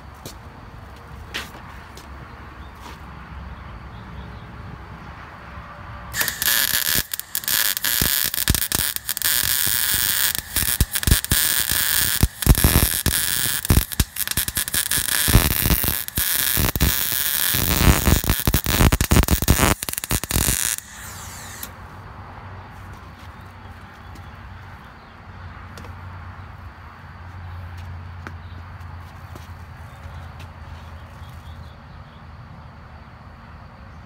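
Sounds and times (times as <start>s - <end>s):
welding arc crackling: 6.1s - 21.8s.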